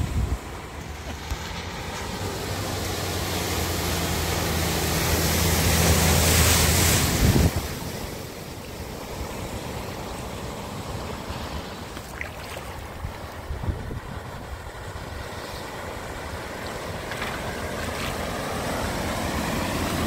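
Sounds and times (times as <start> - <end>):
car engine humming: 0.0 - 12.0
car splashing through floodwater: 0.0 - 20.0.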